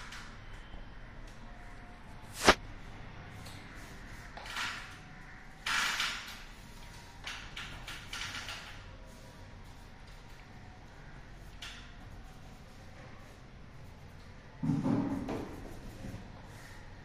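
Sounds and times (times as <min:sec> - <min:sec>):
paint roller scraping: 0:14.8 - 0:16.8.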